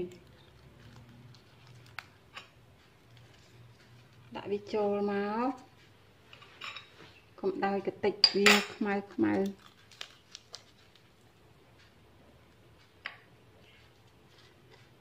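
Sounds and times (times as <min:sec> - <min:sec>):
woman speaking: 0:00.0 - 0:00.2, 0:04.3 - 0:05.7, 0:07.4 - 0:09.6
packet clicks and rustles: 0:00.1 - 0:02.3.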